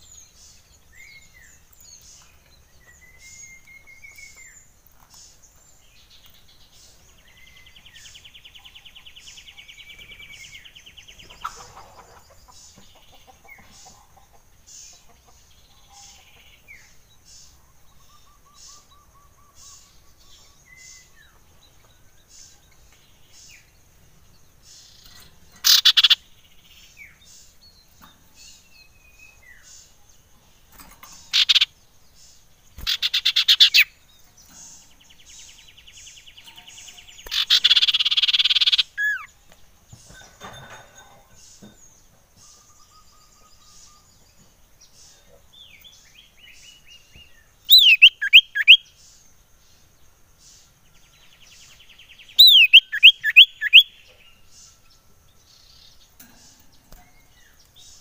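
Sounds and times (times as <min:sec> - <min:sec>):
harsh rattling bird calls: 0:00.0 - 0:58.0
buzzy bird trill: 0:24.8 - 0:29.8, 0:30.6 - 0:39.4, 0:47.7 - 0:48.8, 0:51.7 - 0:54.6
bird chipping and whistling: 0:25.5 - 0:26.2, 0:31.3 - 0:31.7, 0:32.8 - 0:33.9, 0:37.2 - 0:39.3, 0:47.7 - 0:48.8, 0:52.4 - 0:54.0.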